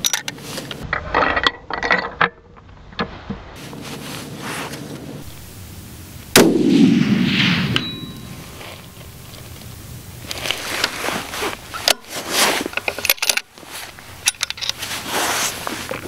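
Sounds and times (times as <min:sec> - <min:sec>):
rifle shot echoing: 0:06.3 - 0:08.6.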